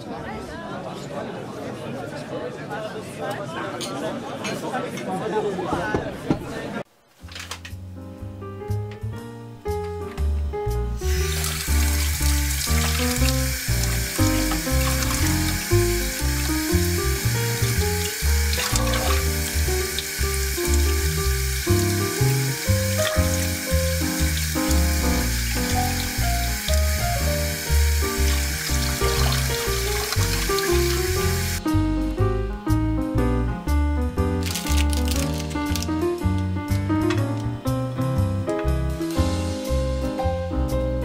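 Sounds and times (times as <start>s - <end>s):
background music: 7.2s - 41.0s
tap water splashing into steel bowl: 18.0s - 19.3s, 28.2s - 31.0s.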